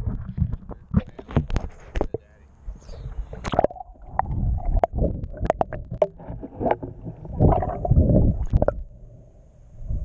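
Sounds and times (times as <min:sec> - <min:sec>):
muffled water sloshing underwater: 0:00.0 - 0:10.0.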